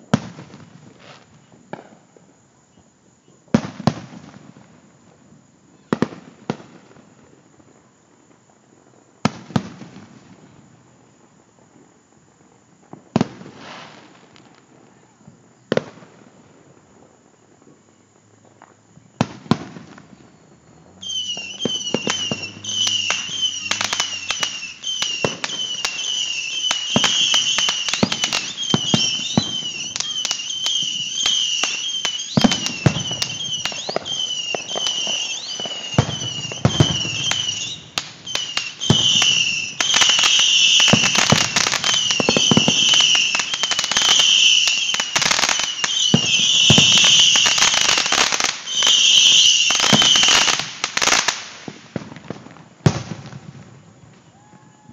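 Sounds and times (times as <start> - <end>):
fireworks bangs and crackling pops: 0.0 - 54.9
high wavering tone: 20.6 - 26.2
firework shell bursts: 20.9 - 35.1.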